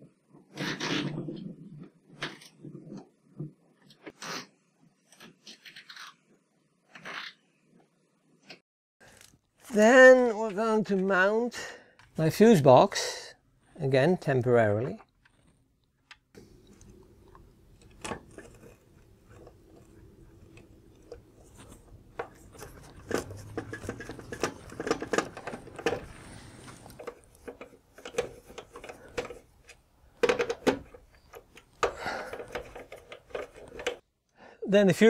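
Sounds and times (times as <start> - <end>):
screwdriver clicks and scrapes: 15.0 - 34.0.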